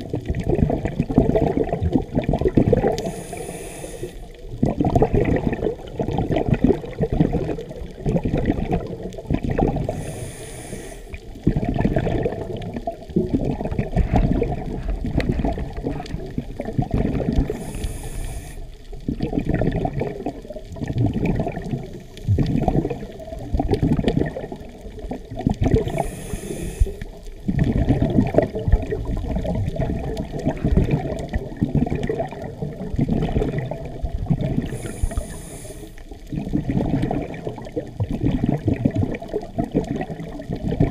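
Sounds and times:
scuba regulator bubbling exhalations: 0:00.0 - 0:40.9
hissing inhale through regulator: 0:02.8 - 0:04.5, 0:09.8 - 0:11.5, 0:17.3 - 0:19.0, 0:21.7 - 0:22.5, 0:25.8 - 0:27.4, 0:34.6 - 0:36.3.

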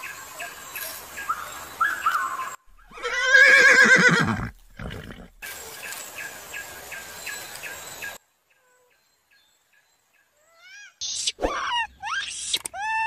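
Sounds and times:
horse whinnying: 0:02.9 - 0:05.4.

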